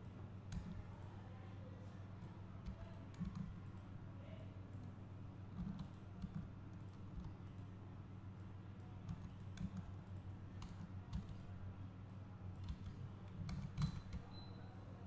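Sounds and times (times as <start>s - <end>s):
computer mouse and keyboard clicks: 0.5s - 0.9s, 2.6s - 3.8s, 5.5s - 7.7s, 9.0s - 11.6s, 12.5s - 14.5s.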